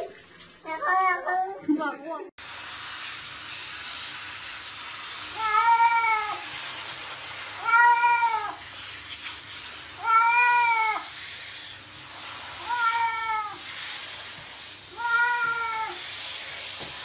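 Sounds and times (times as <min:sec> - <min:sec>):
shower spray hissing: 0:02.4 - 0:17.0
cat meowing: 0:05.4 - 0:06.4, 0:07.6 - 0:08.6, 0:10.0 - 0:11.1, 0:12.6 - 0:13.6, 0:14.9 - 0:16.0.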